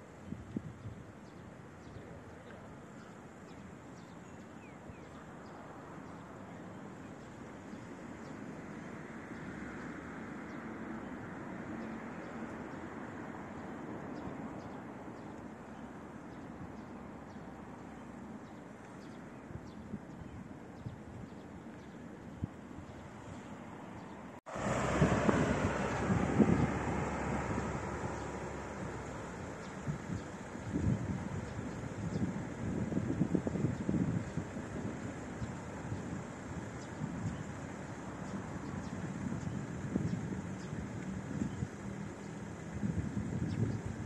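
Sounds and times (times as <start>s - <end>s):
road traffic passing: 7.4s - 15.2s, 23.0s - 44.0s.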